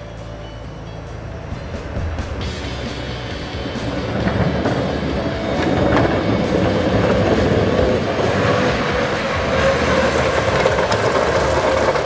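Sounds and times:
diesel truck engine under load: 0.9s - 12.0s
plow blade scraping snow: 1.6s - 12.0s.

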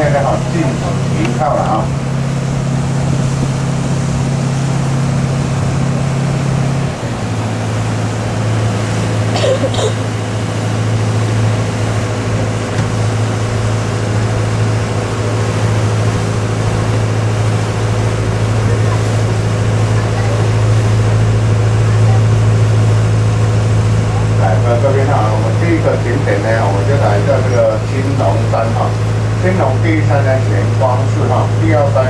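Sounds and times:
ferry engine hum: 0.0s - 32.0s
water noise: 0.0s - 32.0s
wind noise: 1.0s - 7.2s.

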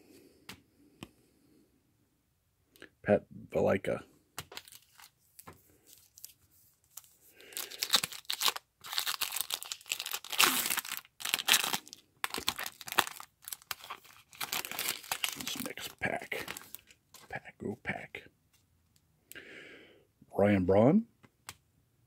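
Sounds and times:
foil wrapper crinkling: 4.5s - 5.2s, 5.8s - 17.0s.

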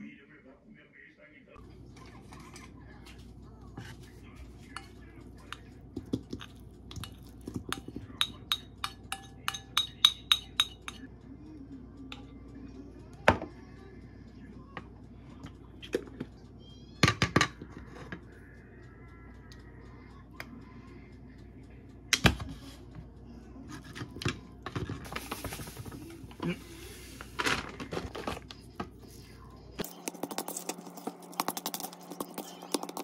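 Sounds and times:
wooden utensils clinking on bowl: 4.6s - 11.1s.

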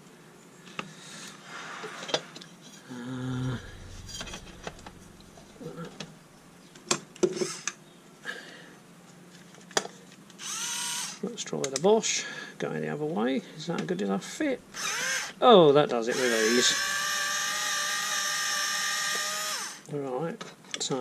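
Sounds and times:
brief low hum: 3.0s - 6.7s.

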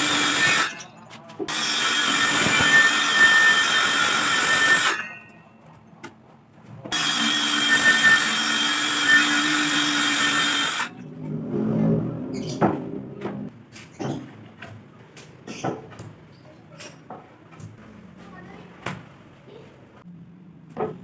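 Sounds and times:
circular saw cutting wood: 0.0s - 0.9s, 1.5s - 5.2s, 6.9s - 11.0s.

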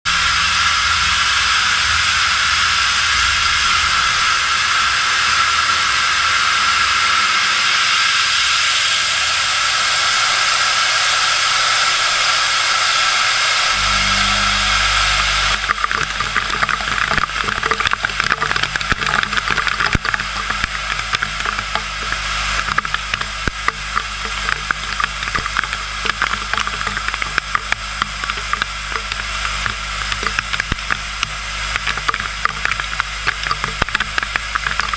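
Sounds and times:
spraying hiss: 0.1s - 17.0s
low machine hum: 0.1s - 34.9s
crackle of metal chips: 13.8s - 34.9s.

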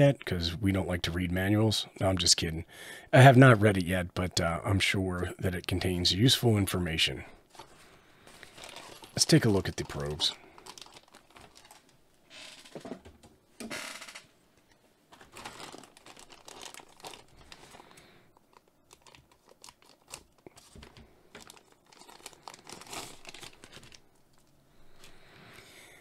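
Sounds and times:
plastic bag crinkling: 7.5s - 12.8s, 15.1s - 25.3s.

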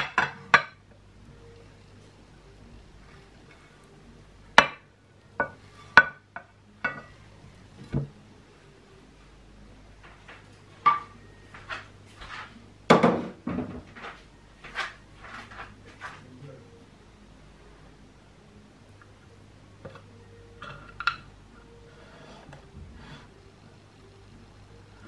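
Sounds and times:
pan knocking on ceramic plate: 12.9s - 13.9s.

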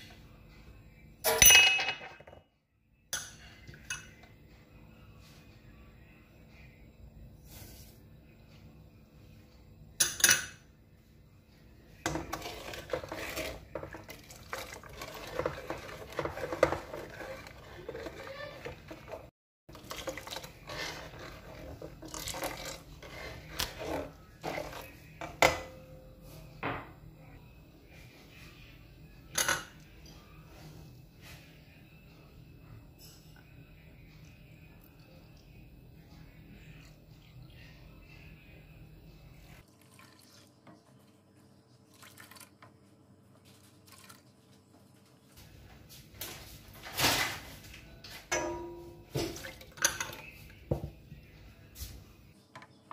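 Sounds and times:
ladle stirring and scraping pan: 12.0s - 25.8s
liquid being poured: 39.7s - 40.6s, 41.8s - 42.6s.

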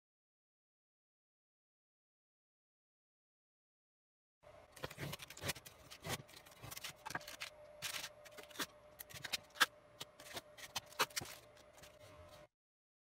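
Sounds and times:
faint steady hum: 4.4s - 12.5s
tape crackling and rubbing: 4.8s - 12.5s.

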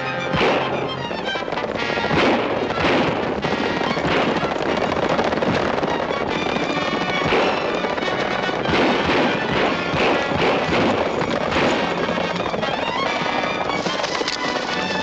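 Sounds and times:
background film music: 0.0s - 15.0s
revolver gunshots: 0.2s - 1.1s, 1.8s - 6.1s, 6.8s - 12.5s.

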